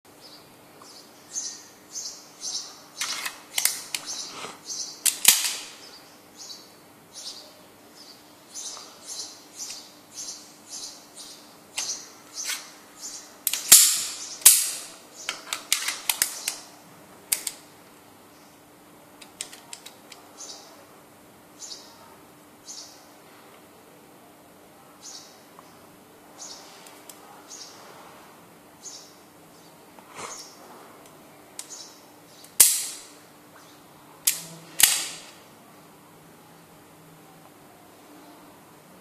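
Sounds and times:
small birds chirping: 0.1s - 15.5s, 16.1s - 16.8s, 17.6s - 23.2s, 24.8s - 32.6s, 33.2s - 34.2s
pistol metallic clicks: 3.0s - 4.1s, 5.0s - 5.8s, 13.4s - 16.6s, 32.4s - 33.1s, 34.2s - 35.4s.

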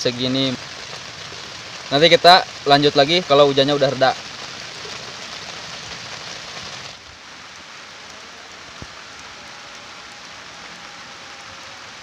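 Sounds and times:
rain falling on wet mud: 0.0s - 12.0s.

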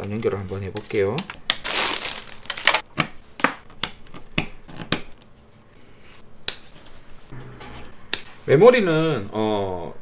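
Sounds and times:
plastic wrapping rustling: 0.5s - 2.8s.

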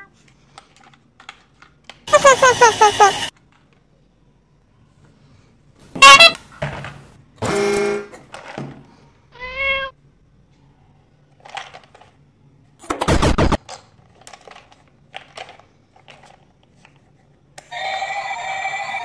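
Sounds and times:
toy electronic tone: 17.7s - 19.0s.

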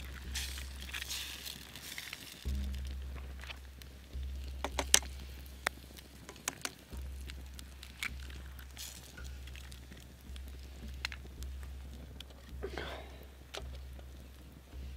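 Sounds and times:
campfire crackling and popping: 0.0s - 14.9s.

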